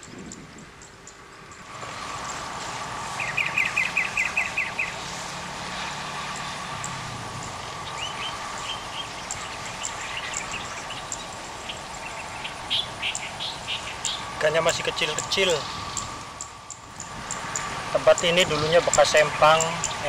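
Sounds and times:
birds chirping: 0.0s - 20.0s
steady hum: 0.0s - 20.0s.

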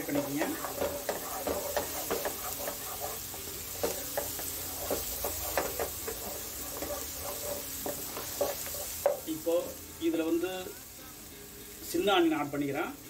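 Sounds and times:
spatula scraping and tapping pan: 0.0s - 9.4s
food sizzling in hot oil: 0.0s - 13.0s.

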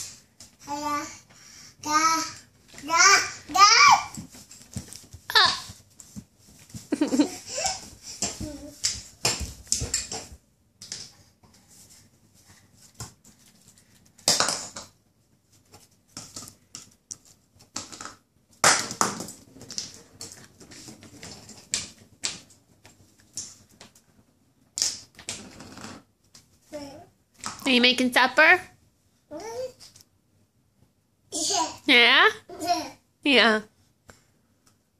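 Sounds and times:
plastic cups clattering on tiled floor: 14.2s - 15.0s, 17.6s - 22.5s.

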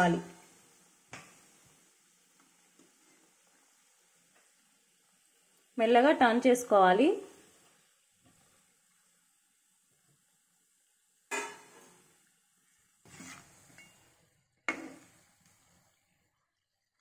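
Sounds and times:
faint frying in hot oil: 0.0s - 17.0s
metal skimmer knocking on pan: 11.3s - 11.8s.

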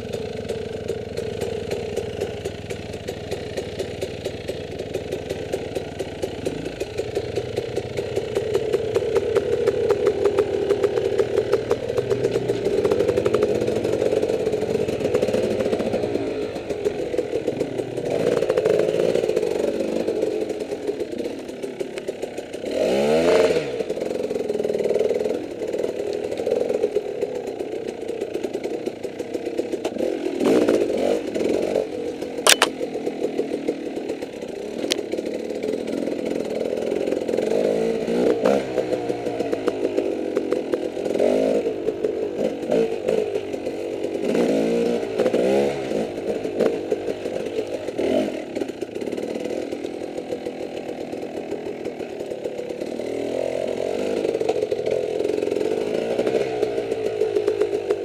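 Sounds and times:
dirt bike engine blipping: 32.4s - 33.0s.

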